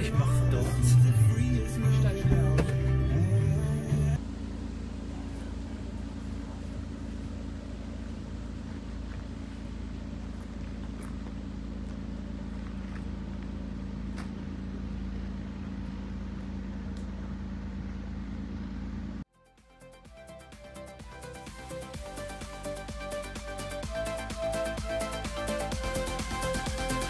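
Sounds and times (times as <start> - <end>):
engine droning: 0.0 - 19.3.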